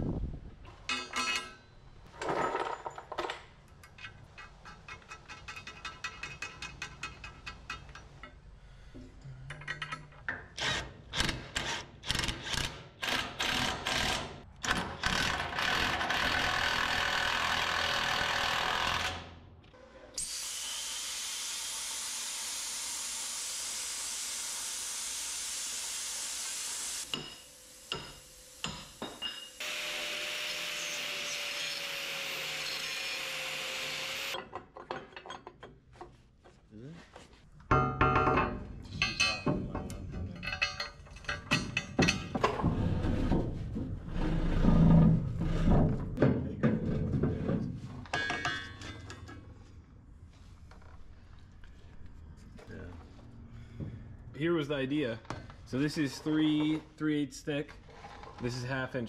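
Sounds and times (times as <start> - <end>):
angle grinder cutting steel: 20.2 - 34.4.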